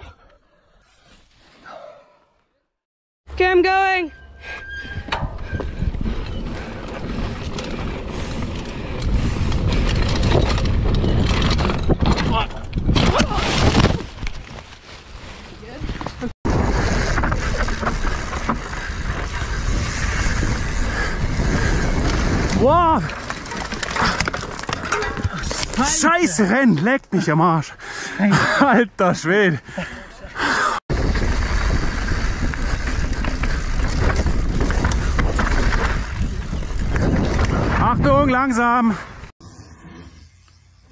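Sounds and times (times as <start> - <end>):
wind buffeting microphone: 5.0 - 13.0, 15.8 - 24.2, 30.9 - 38.5
bike rattling and knocking: 5.1 - 13.1, 16.0 - 26.1, 30.9 - 38.8.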